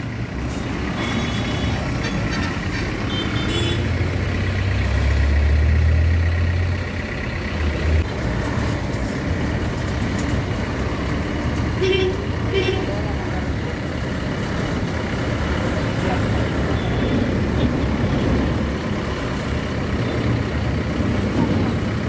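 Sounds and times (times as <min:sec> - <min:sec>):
road traffic: 0:00.0 - 0:22.0
truck engine rumbling: 0:00.0 - 0:22.0.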